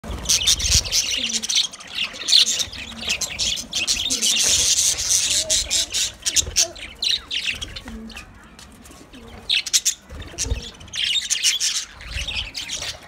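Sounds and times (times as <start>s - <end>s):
budgerigars chattering: 0.2s - 8.4s, 9.2s - 13.0s.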